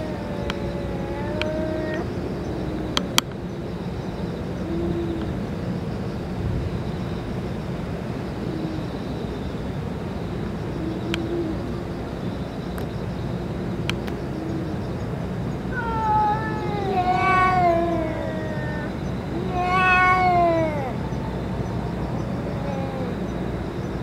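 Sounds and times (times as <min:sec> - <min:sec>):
cat growling: 0:00.0 - 0:03.0, 0:15.7 - 0:21.1, 0:22.3 - 0:23.3
cats yowling: 0:00.0 - 0:03.2, 0:15.6 - 0:23.6.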